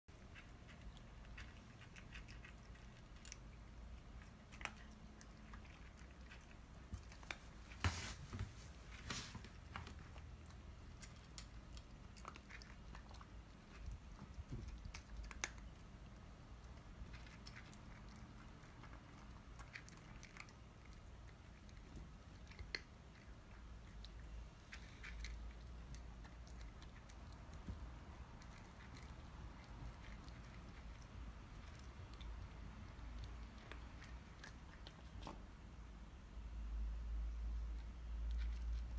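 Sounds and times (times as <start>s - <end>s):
cats crunching dry kibble: 0.2s - 7.8s, 8.8s - 35.2s.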